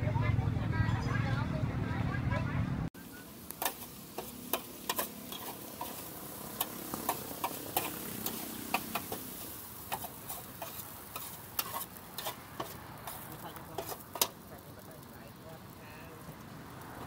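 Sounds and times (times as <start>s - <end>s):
food crackling: 3.0s - 17.0s
steady hiss: 3.0s - 17.0s.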